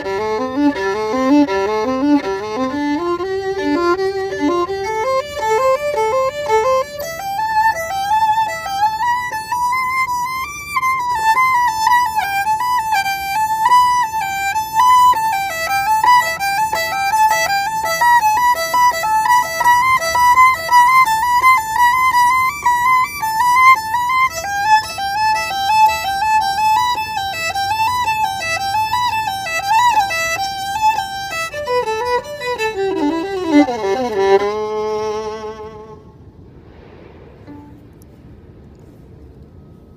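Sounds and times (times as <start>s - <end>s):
solo violin melody: 0.0s - 36.7s, 37.4s - 39.9s.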